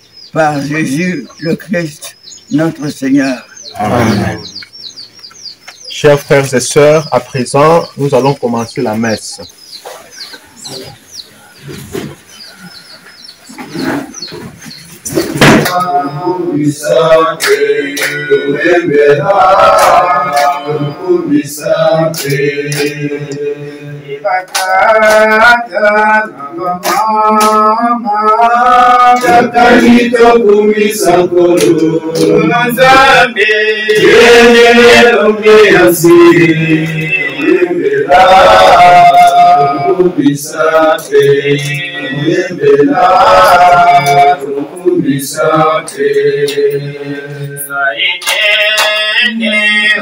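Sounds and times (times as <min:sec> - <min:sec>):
male voices singing a hymn: 0:00.3 - 0:05.0, 0:05.9 - 0:12.7, 0:13.7 - 0:50.0
hand claps: 0:15.5 - 0:16.0, 0:16.8 - 0:18.7, 0:19.6 - 0:20.7, 0:21.6 - 0:23.5, 0:24.4 - 0:25.6, 0:26.8 - 0:27.8, 0:28.6 - 0:30.0, 0:31.0 - 0:32.9, 0:38.1 - 0:39.6, 0:40.2 - 0:41.9, 0:43.3 - 0:44.4, 0:45.8 - 0:46.8, 0:48.0 - 0:49.3.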